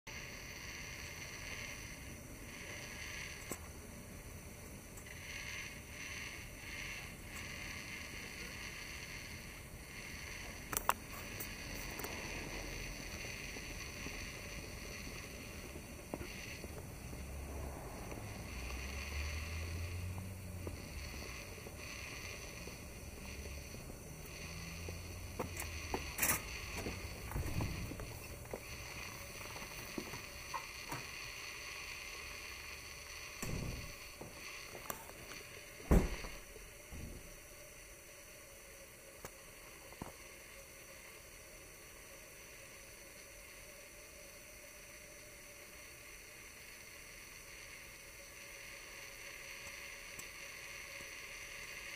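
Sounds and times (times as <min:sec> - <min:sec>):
faint high steady tones: 0:00.1 - 0:51.9
faint steady hum: 0:00.1 - 0:51.9
outdoor background hiss: 0:00.1 - 0:51.9
sharp clicks: 0:10.5 - 0:16.9
low thump: 0:35.9 - 0:36.4.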